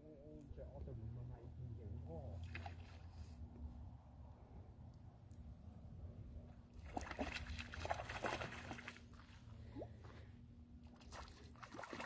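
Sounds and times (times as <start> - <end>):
fish splashing at water surface: 6.8 - 9.2, 10.8 - 12.0.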